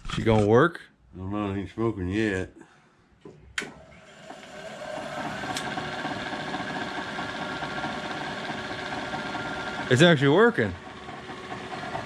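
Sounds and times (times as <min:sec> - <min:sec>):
electric motor whining: 0:04.3 - 0:12.0.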